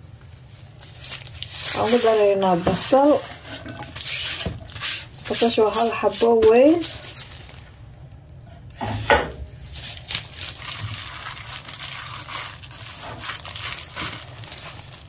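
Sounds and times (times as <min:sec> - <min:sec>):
plastic gloves crinkling: 0:00.0 - 0:15.0
wet squishing of meat: 0:09.6 - 0:15.0.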